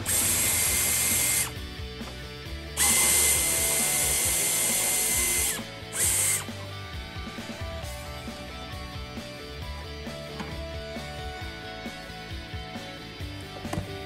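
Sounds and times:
power drill whining: 0.0 - 1.6, 2.8 - 6.6.

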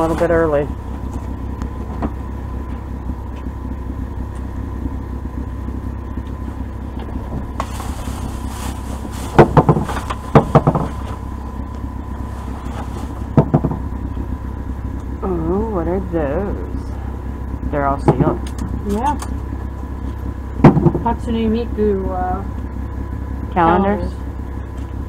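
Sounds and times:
low rumble: 0.0 - 25.0
thin constant hum: 0.0 - 25.0
rustling: 6.9 - 14.2.

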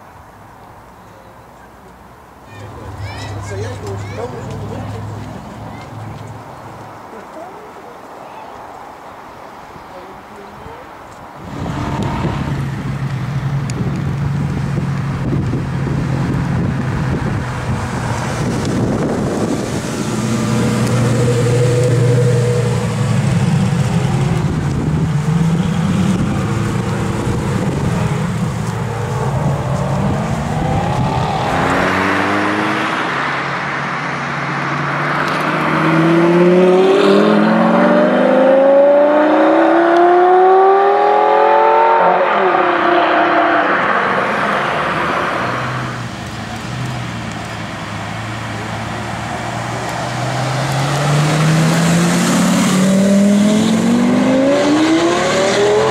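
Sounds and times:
sports car engine accelerating: 11.4 - 55.9.

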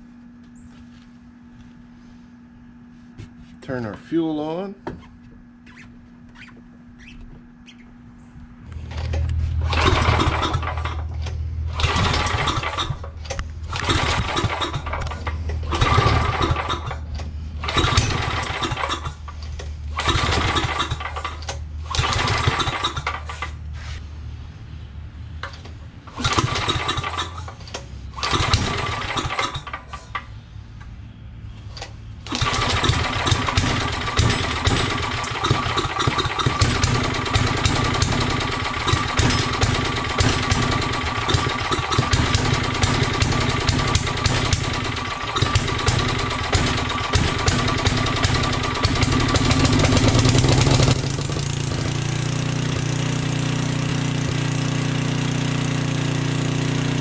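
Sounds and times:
generator engine surging: 8.7 - 31.2, 32.2 - 57.0.

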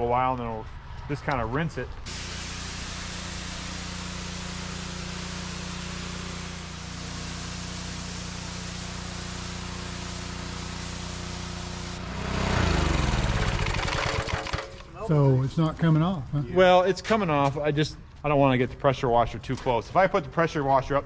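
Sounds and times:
low motor hum: 2.0 - 14.3
pressure washer spray hiss: 2.1 - 14.3.

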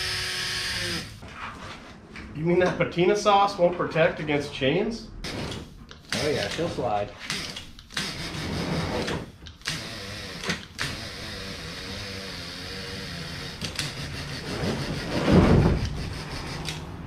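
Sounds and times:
electric motor whirring: 0.0 - 1.1, 7.3 - 14.5.

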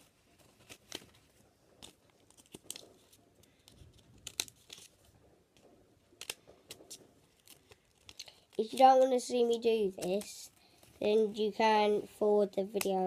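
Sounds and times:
scissors snipping paper: 1.8 - 5.0, 6.2 - 10.5.

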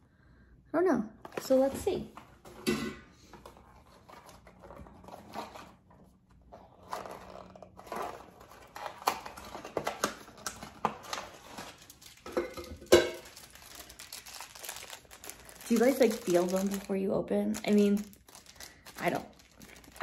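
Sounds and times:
packet crinkling: 6.8 - 20.0.

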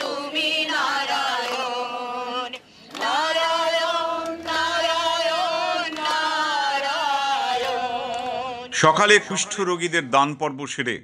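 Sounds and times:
women singing a devotional chant: 0.0 - 8.8.

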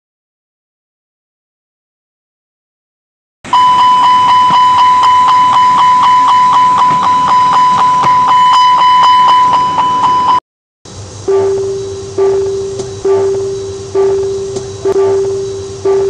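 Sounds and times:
smoke detector alarm pulsing: 3.5 - 10.4, 11.2 - 16.0.

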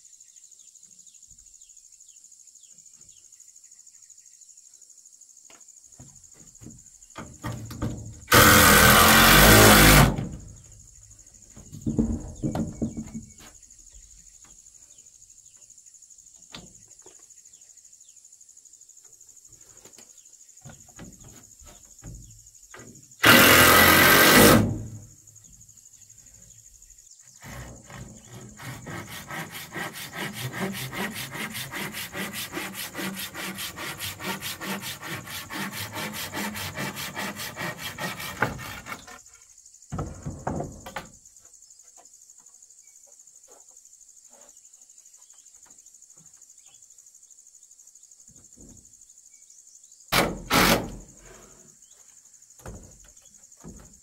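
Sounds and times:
high insect drone: 0.0 - 54.0
cordless drill driving screw: 8.3 - 10.1, 23.2 - 24.7
handsaw cutting wood: 8.3 - 10.4, 23.2 - 25.0, 27.4 - 39.2, 50.2 - 51.0.

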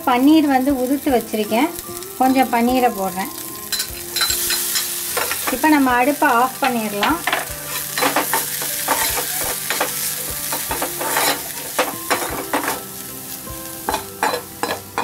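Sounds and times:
light sizzle: 0.0 - 15.0
steel spatula scraping pan: 6.6 - 12.8.

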